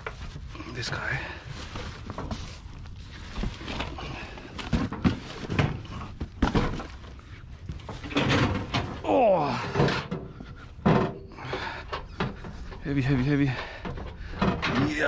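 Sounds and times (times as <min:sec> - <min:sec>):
thuds and knocks of items: 0:03.2 - 0:12.8, 0:13.5 - 0:15.0.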